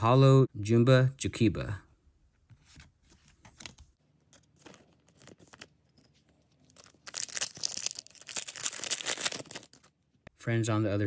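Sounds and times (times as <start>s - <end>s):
trading cards rustling and tapping: 2.5s - 9.9s
foil wrapper tearing: 6.6s - 9.9s.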